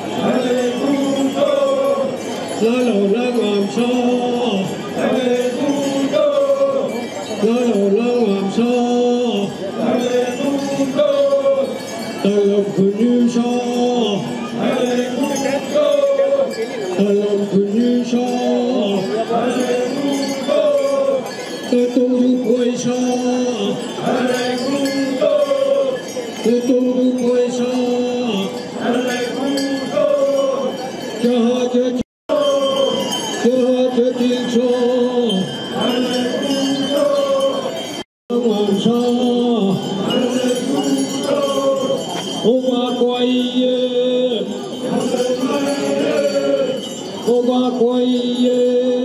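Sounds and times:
group chanting in unison: 0.0s - 2.4s, 4.0s - 8.6s, 9.5s - 11.8s, 14.1s - 16.7s, 18.9s - 21.4s, 23.9s - 26.2s, 28.4s - 30.9s, 32.3s - 33.3s, 35.8s - 37.9s, 39.8s - 42.2s, 44.4s - 46.9s.

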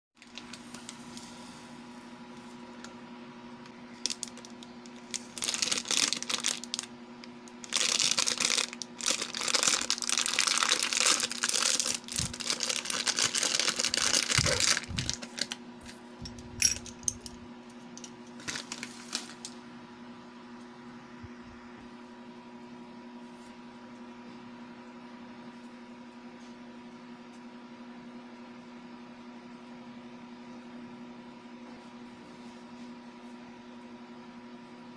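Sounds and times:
plastic bag crinkling and tearing: 0.2s - 1.2s, 3.9s - 15.6s, 18.4s - 19.6s.

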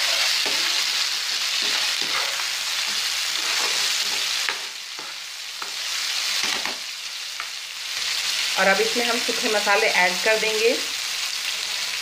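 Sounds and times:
spatula stirring and scraping: 0.0s - 6.8s
food sizzling in hot oil: 0.0s - 12.0s.

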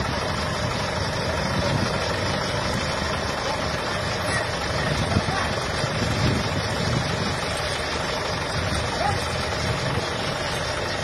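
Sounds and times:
heavy diesel engine running: 0.0s - 11.0s
faint voices calling out: 3.0s - 7.2s.

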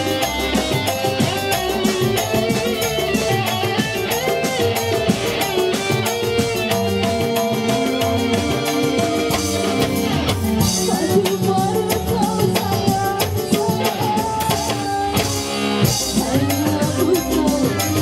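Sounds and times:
live band music: 0.0s - 18.0s
woman singing: 10.6s - 18.0s.

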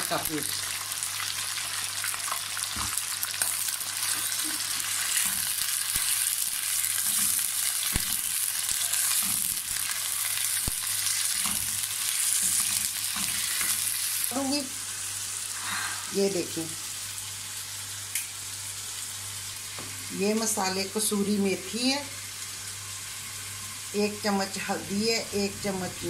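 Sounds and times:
meat sizzling in hot oil: 0.0s - 26.0s.

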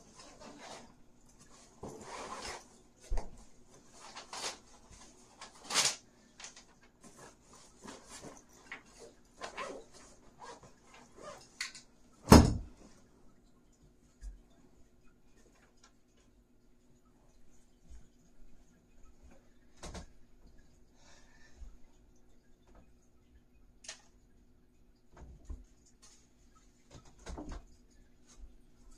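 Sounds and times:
rustling of things handled: 0.0s - 13.1s, 25.2s - 28.9s.

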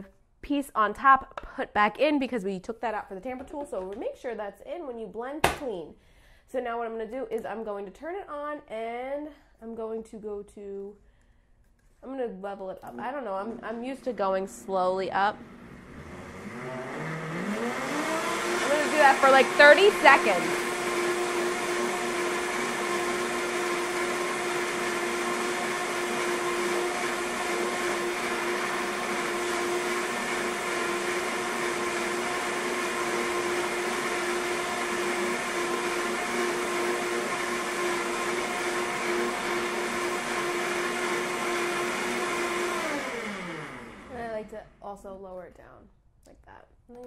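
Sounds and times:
blender motor whining: 14.0s - 44.4s.

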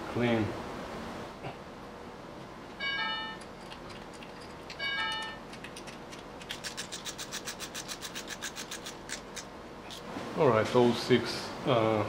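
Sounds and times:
ratchet wrench clicking: 5.7s - 9.5s.

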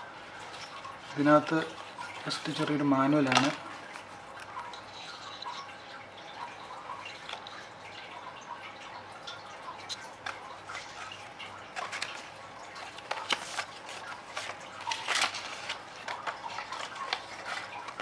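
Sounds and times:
paper and card rustling: 0.2s - 5.7s, 9.9s - 18.0s.

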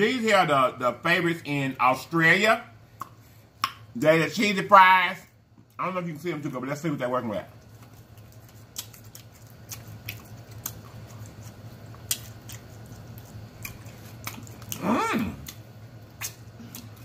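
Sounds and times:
steady low hum: 0.0s - 17.0s
man chewing with mouth smacks: 7.5s - 17.0s
man humming mmm: 14.7s - 15.6s.

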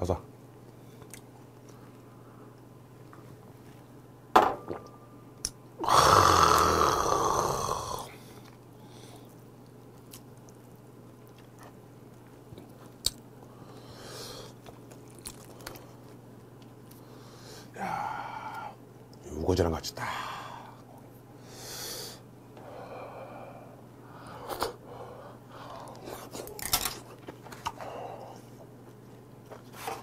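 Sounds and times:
soft chewing: 0.6s - 3.8s, 8.3s - 13.8s, 14.5s - 17.1s.

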